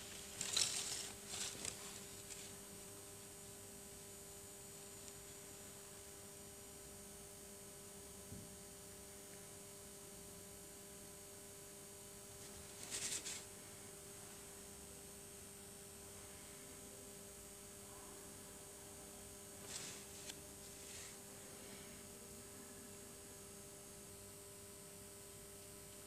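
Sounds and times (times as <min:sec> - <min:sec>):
scratchy rustle: 0:00.0 - 0:02.6, 0:12.4 - 0:13.5, 0:19.6 - 0:21.2
electrical mains hum: 0:00.0 - 0:26.0.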